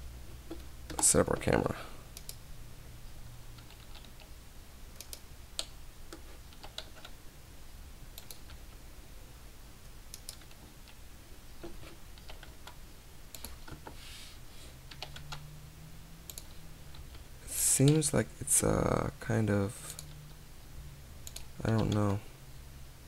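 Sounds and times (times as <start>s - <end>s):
steady low hum: 0.0s - 23.0s
mouse clicks: 16.3s - 16.5s
keyboard keystrokes: 21.2s - 22.2s.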